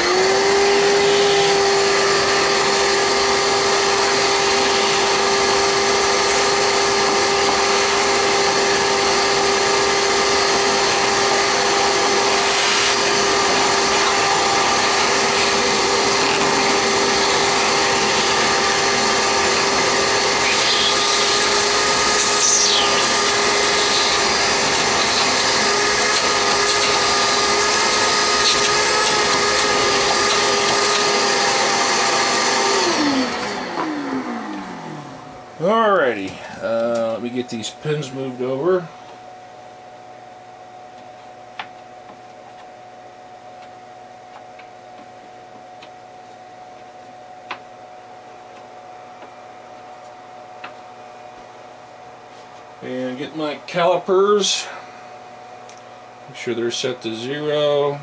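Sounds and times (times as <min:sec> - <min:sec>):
vacuum cleaner winding down: 0:00.0 - 0:38.9
vacuum cleaner whining: 0:00.0 - 0:58.0.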